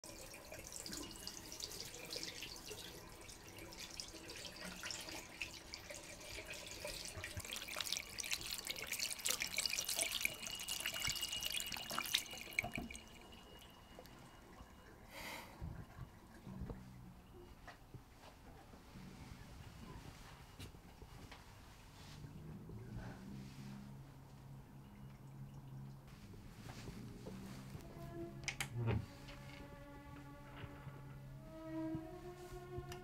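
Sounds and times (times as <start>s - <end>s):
tap water splashing into sink: 0.2s - 13.2s.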